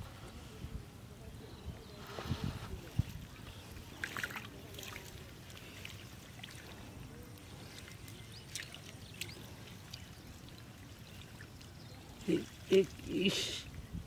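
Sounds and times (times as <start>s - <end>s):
wet mud squelches: 3.4s - 13.6s.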